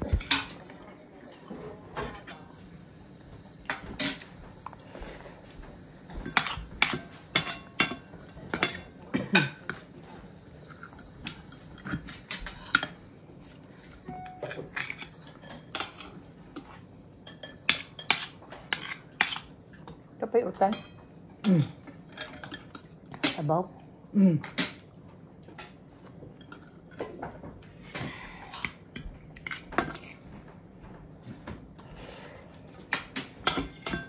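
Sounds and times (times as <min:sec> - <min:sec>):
cutlery clinking on ceramic plates: 0:06.2 - 0:09.9, 0:14.0 - 0:20.0, 0:32.8 - 0:34.0.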